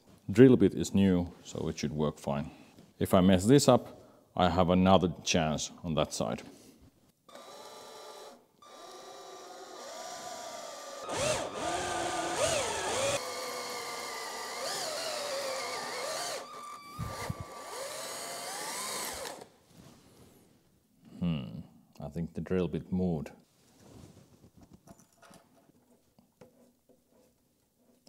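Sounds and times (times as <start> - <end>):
power drill boring through metal: 7.3 - 19.5.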